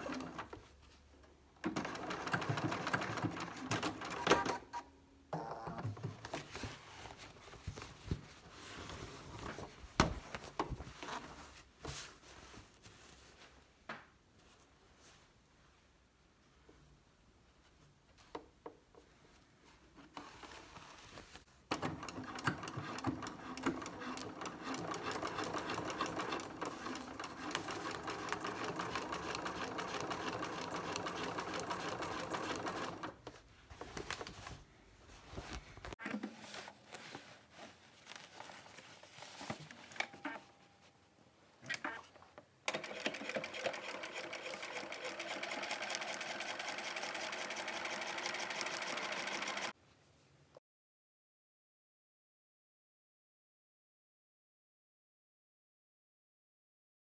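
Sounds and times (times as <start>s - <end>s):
sewing machine stitching: 1.6s - 4.6s, 21.7s - 33.2s, 42.7s - 49.8s.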